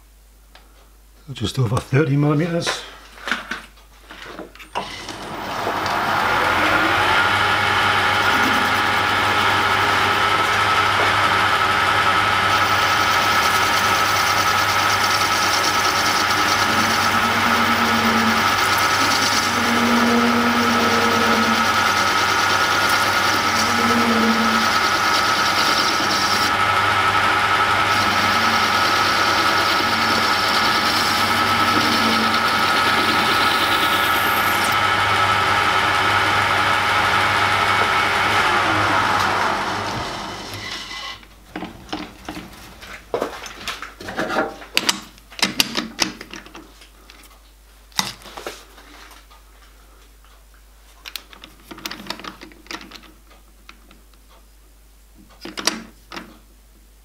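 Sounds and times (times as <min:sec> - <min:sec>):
tool cutting spinning metal: 0:04.8 - 0:42.5
lathe motor whine: 0:04.8 - 0:42.7.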